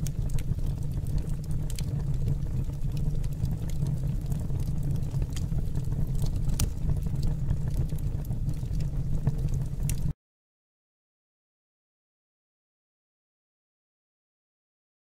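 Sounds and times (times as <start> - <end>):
burner flame roaring: 0.0 - 10.1
flame crackling: 0.0 - 10.1.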